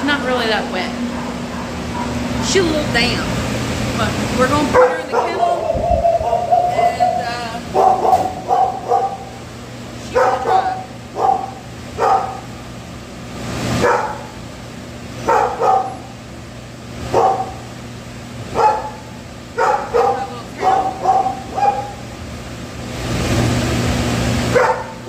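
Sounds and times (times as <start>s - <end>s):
steady low hum: 0.0s - 25.0s
dog barking: 1.1s - 2.2s, 4.7s - 9.4s, 10.1s - 12.5s, 13.8s - 14.4s, 15.2s - 16.1s, 17.1s - 17.7s, 18.5s - 22.0s, 24.5s - 25.0s.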